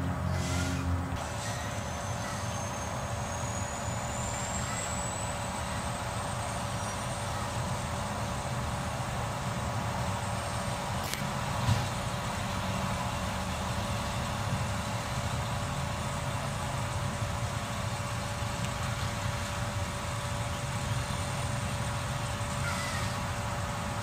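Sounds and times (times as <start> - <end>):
hydraulic arm lifting cart: 0.0 - 9.3
garbage truck running: 0.0 - 24.0.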